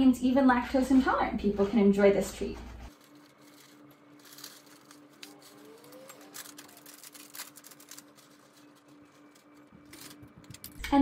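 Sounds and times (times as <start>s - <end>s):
plastic bag crinkling: 2.9s - 10.8s.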